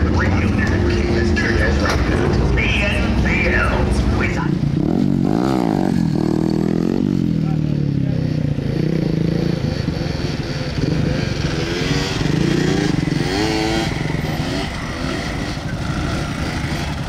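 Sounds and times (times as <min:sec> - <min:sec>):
atv engine revving: 0:00.0 - 0:17.0.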